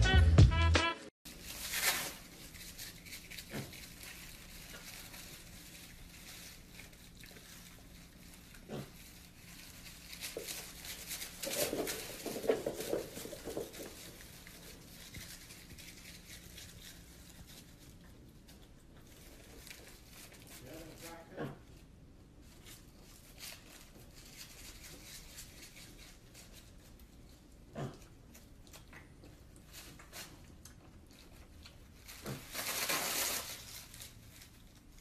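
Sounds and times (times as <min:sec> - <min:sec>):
pig rustling shredded paper: 0:01.3 - 0:35.0
pig grunts: 0:08.6 - 0:09.0, 0:21.2 - 0:21.7, 0:27.7 - 0:28.2.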